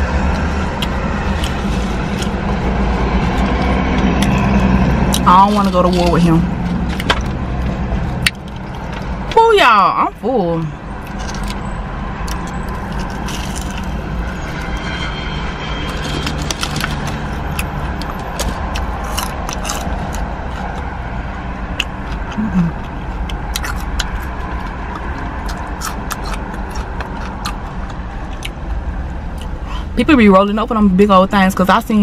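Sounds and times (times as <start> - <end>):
chewing crispy chicken: 0.0 - 6.1, 12.2 - 14.7, 15.9 - 21.0, 21.7 - 29.6
distant traffic rumble: 0.0 - 32.0.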